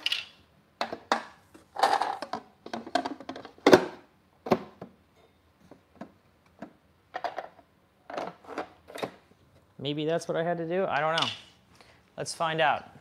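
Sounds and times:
plastic parts and cardboard clattering: 0.0s - 5.0s, 5.6s - 9.3s.

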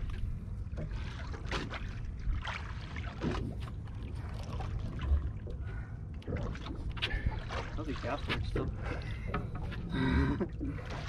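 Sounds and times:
water lapping against boat: 0.0s - 11.0s.

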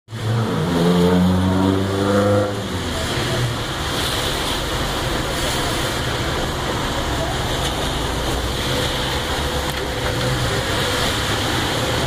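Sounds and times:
traffic rush and tyre hiss: 0.1s - 12.0s
car driving past: 0.2s - 3.1s.

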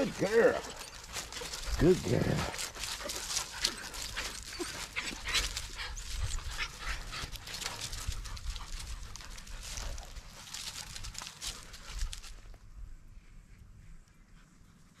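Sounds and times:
puppies whining: 0.0s - 7.9s
puppies panting: 0.0s - 12.5s
scrabbling on bark and dry leaves: 0.0s - 12.7s.

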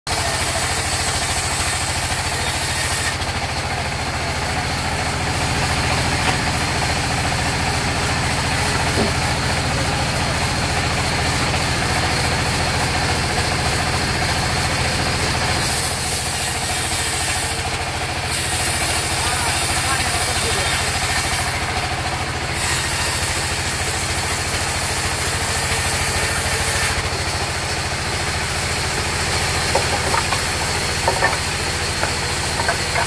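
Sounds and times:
band saw cutting log hiss: 0.1s - 3.8s, 15.5s - 21.6s, 22.5s - 27.5s, 28.3s - 33.0s
engine chugging: 0.1s - 33.0s.

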